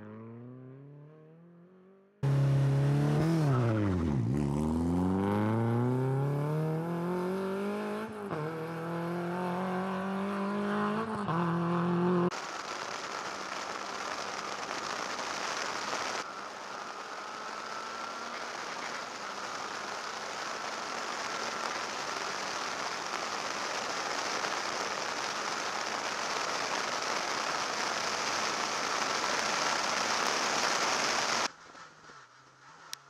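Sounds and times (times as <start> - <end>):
tyre and wind hiss: 12.3 - 33.0.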